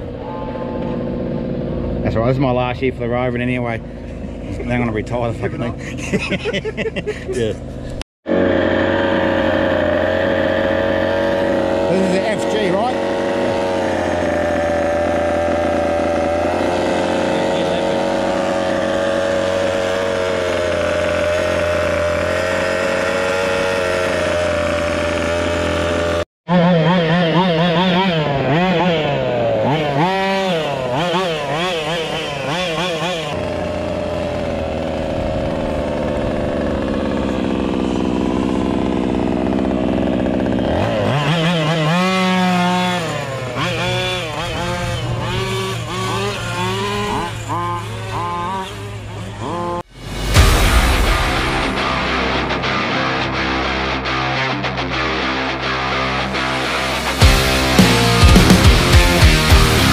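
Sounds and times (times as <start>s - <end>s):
rc car engine running: 8.3s - 49.9s.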